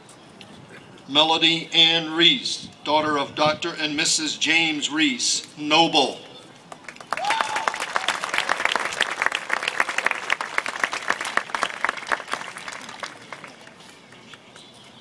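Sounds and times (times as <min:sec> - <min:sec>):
audience applauding: 0:06.9 - 0:14.3.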